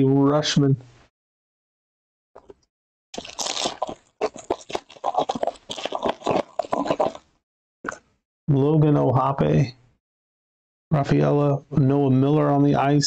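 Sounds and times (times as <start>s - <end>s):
foil wrapper crinkling and tearing: 3.2s - 7.2s.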